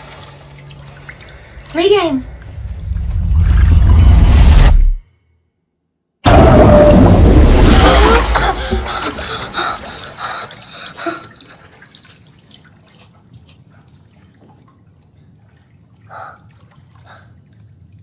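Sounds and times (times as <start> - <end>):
water dripping in a bathtub: 0.0 - 2.6, 8.4 - 18.0.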